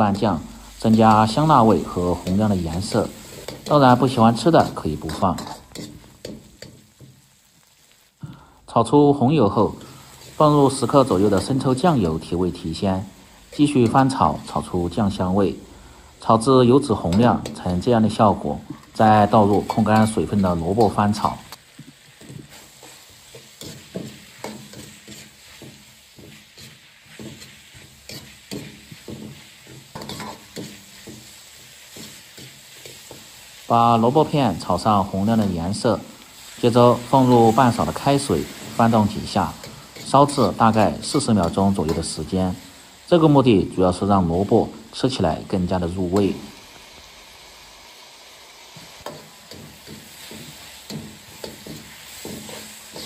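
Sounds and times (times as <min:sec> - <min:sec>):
hot oil sizzling: 0:00.0 - 0:53.0
metal ladle scraping a wok: 0:00.9 - 0:07.1, 0:18.7 - 0:33.7, 0:49.0 - 0:53.0.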